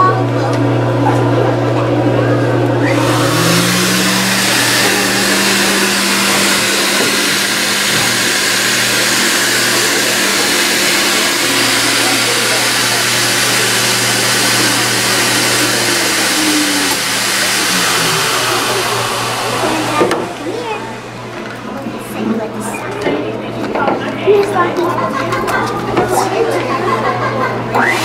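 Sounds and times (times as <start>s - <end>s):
blower motor rushing air: 2.7s - 21.7s, 27.8s - 28.0s.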